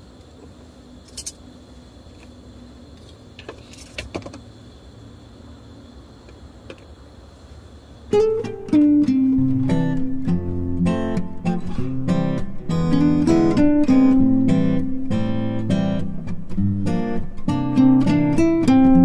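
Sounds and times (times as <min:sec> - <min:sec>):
faint high whine: 0:00.0 - 0:19.0
strummed acoustic guitar music: 0:08.1 - 0:19.0.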